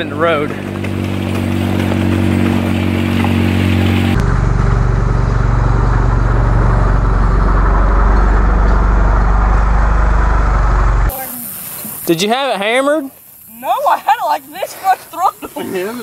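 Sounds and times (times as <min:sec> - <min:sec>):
off-road vehicle engine driving past: 0:00.0 - 0:11.1.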